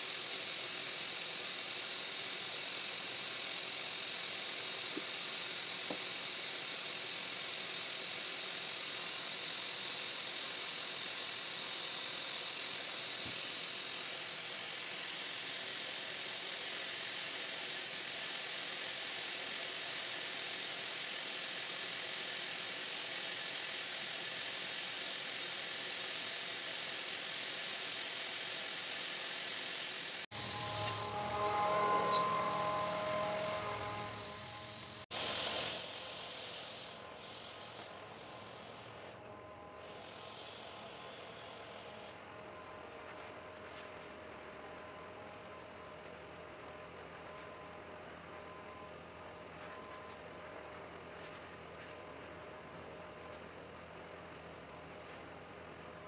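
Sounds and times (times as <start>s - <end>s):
extraction vacuum whistling hiss: 0.0s - 39.2s, 39.8s - 41.8s.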